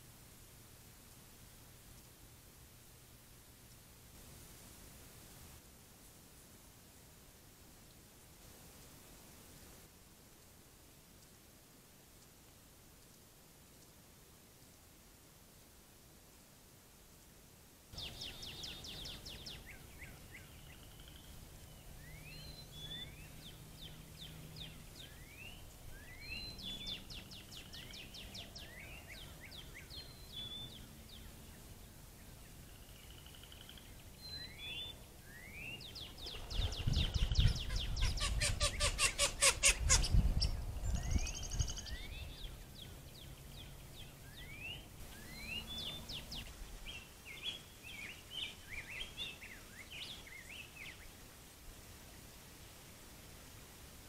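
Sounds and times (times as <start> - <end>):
rapid pulsing calls: 35.6 - 40.6.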